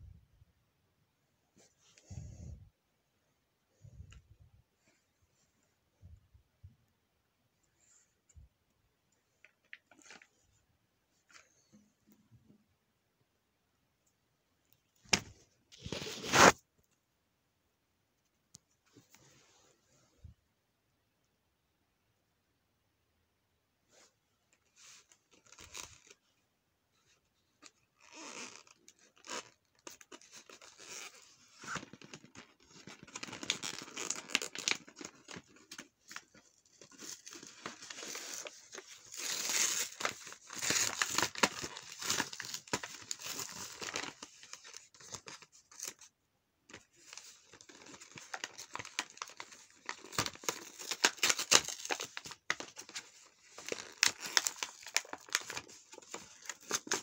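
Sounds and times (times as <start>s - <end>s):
cardboard tearing: 36.8s - 44.5s, 47.0s - 57.0s.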